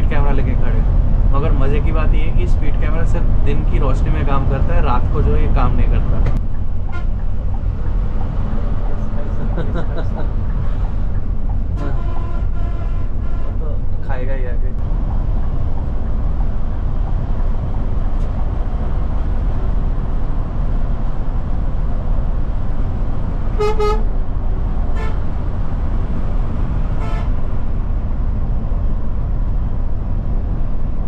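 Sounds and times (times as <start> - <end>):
bus engine rumble: 0.0 - 31.0
bus horn blasts: 6.9 - 7.3, 11.7 - 13.7, 23.5 - 24.2, 24.9 - 25.4, 26.8 - 27.5.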